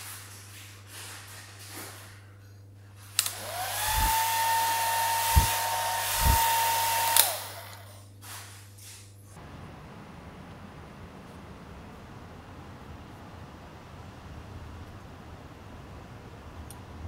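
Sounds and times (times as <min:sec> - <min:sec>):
hair dryer switch click: 0:03.2 - 0:07.8
hair dryer motor whine and air: 0:03.2 - 0:08.0
low thumps: 0:05.2 - 0:06.6.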